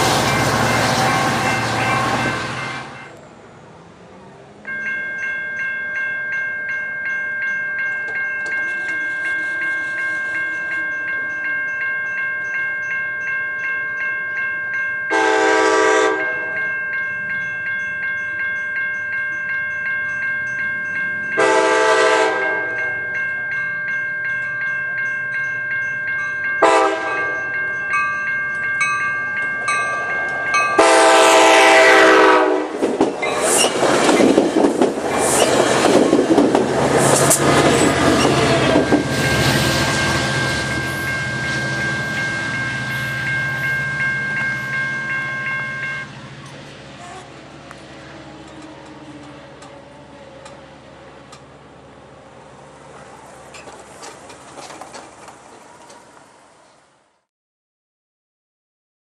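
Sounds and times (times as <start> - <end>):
crossing warning bell ringing: 0.0 - 3.8, 4.5 - 54.7
train cars rushing past: 0.0 - 13.3, 14.2 - 57.1
train horn blasts: 0.8 - 3.2, 15.1 - 16.7, 21.4 - 23.0, 26.6 - 27.4, 30.7 - 32.8.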